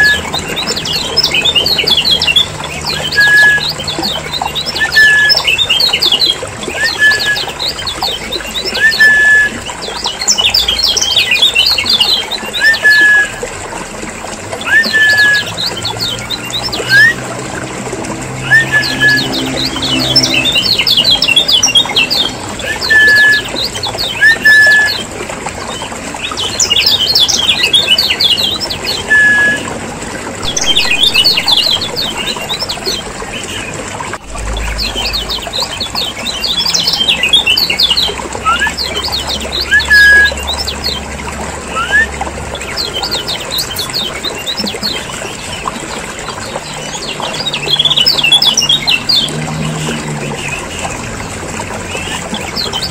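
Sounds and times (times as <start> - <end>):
clear whistled bird notes: 0.0 - 13.5, 14.6 - 17.3, 18.4 - 25.1, 25.7 - 29.7, 30.4 - 41.0, 41.7 - 45.0.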